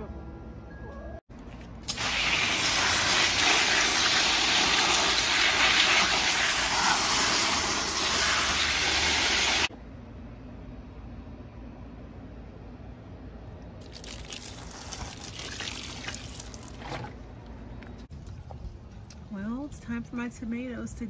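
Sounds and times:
hose nozzle spraying water: 0:01.8 - 0:09.7.

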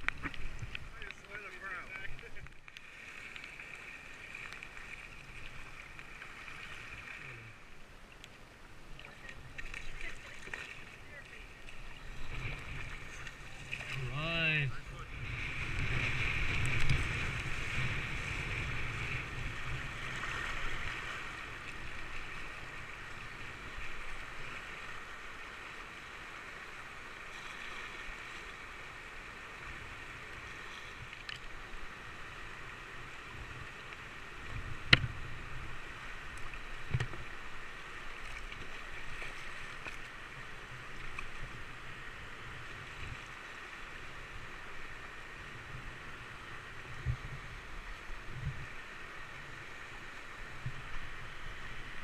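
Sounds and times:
river rapids rushing and splashing: 0:09.1 - 0:15.0.

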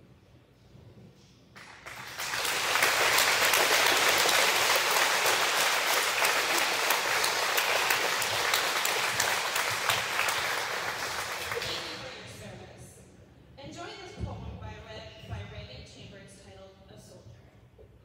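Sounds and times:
crowd of children applauding: 0:01.6 - 0:12.2.

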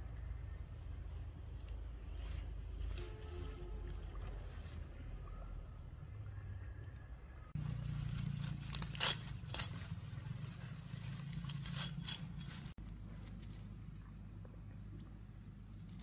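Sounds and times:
knife cutting leafy stems: 0:07.6 - 0:13.5.

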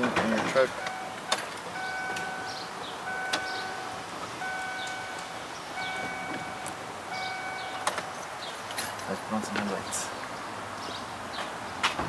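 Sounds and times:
dashboard warning chime: 0:00.6 - 0:08.2.

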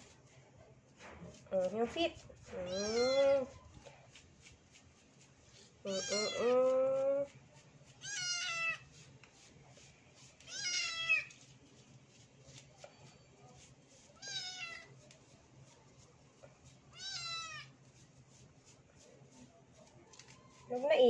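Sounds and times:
kitten meowing: 0:02.7 - 0:03.2.

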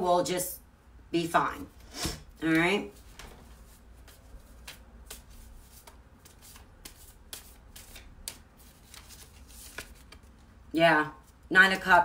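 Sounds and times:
cards being shuffled by hand: 0:01.8 - 0:10.6.

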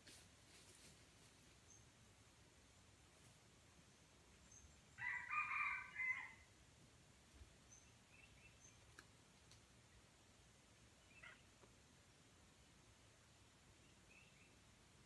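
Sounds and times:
rooster crowing: 0:05.0 - 0:06.5.

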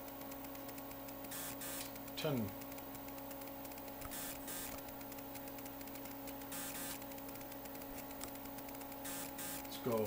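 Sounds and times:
faint crackling clicks: 0:00.0 - 0:10.0
low electrical hum: 0:00.0 - 0:10.0.

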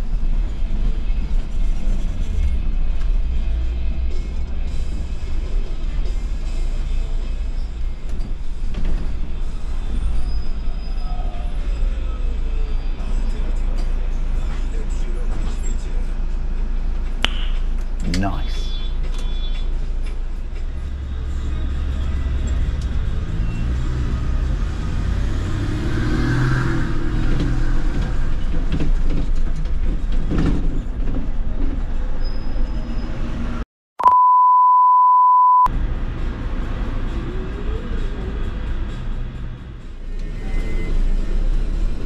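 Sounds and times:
bus engine rumble: 0:00.0 - 0:33.6, 0:35.7 - 0:42.0
road noise: 0:00.0 - 0:33.6, 0:35.7 - 0:42.0
steady beep tone: 0:34.0 - 0:35.7.

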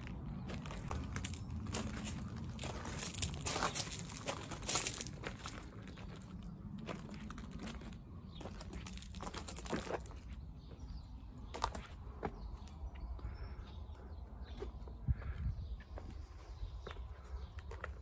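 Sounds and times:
footsteps crunching on gravel: 0:00.0 - 0:10.9.

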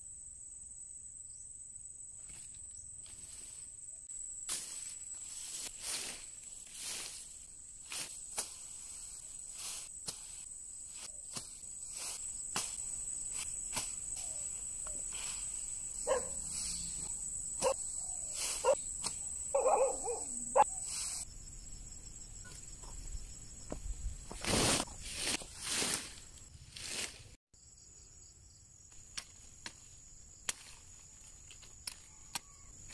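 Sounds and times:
insects trilling: 0:00.1 - 0:24.8, 0:27.6 - 0:32.9
animal calls: 0:19.5 - 0:20.9
plant stalks being cut and handled: 0:28.9 - 0:32.9.

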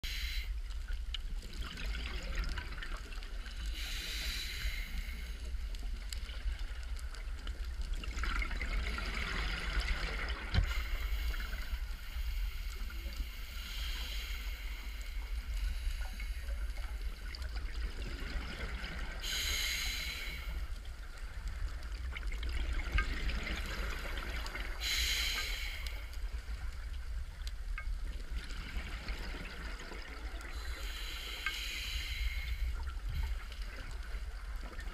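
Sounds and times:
scuba regulator breathing bubbles: 0:19.2 - 0:20.6, 0:23.3 - 0:26.1, 0:30.5 - 0:33.7.

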